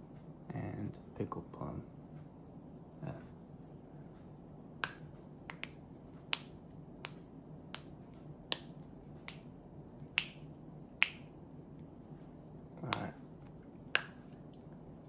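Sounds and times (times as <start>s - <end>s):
fingers snapping: 4.8s - 9.5s, 10.1s - 11.3s, 12.8s - 13.2s, 13.9s - 14.2s.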